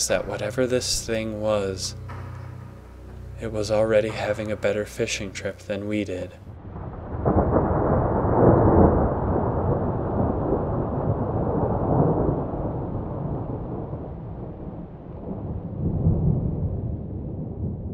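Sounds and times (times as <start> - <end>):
deep rolling rumble: 0.0 - 14.2.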